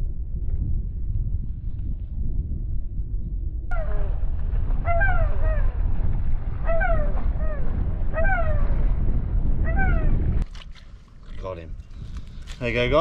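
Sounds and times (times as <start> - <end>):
wind buffeting microphone: 0.0 - 13.0
gull calling: 3.7 - 5.8, 6.6 - 8.9, 9.6 - 10.2.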